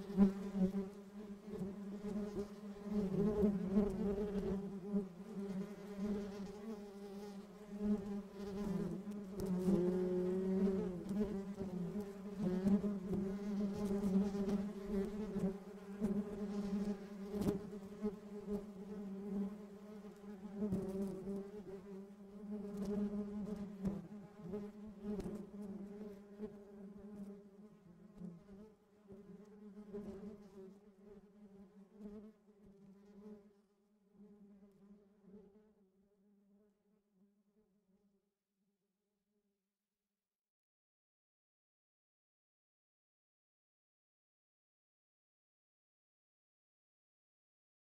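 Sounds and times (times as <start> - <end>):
honeybee buzzing: 0.0 - 27.2.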